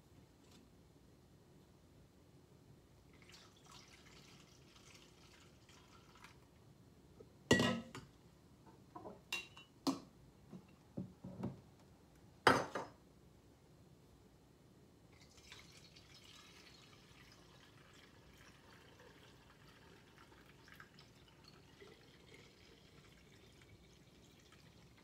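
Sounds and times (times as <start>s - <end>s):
juice trickling through funnel: 3.0s - 6.6s, 15.1s - 25.0s
kitchenware clanking on counter: 7.5s - 8.0s, 12.5s - 13.0s
light clinks of kitchenware: 9.0s - 10.0s.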